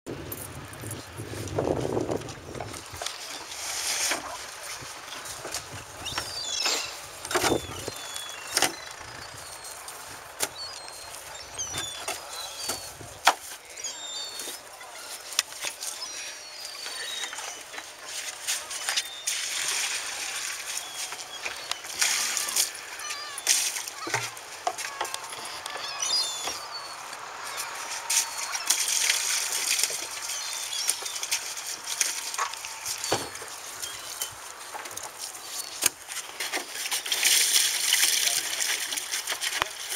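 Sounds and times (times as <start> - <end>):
fish clattering in plastic buckets: 1.5 - 13.7, 27.7 - 39.9
high bird chirps: 6.0 - 9.8, 24.9 - 27.6
wind and surf hiss: 17.7 - 38.3.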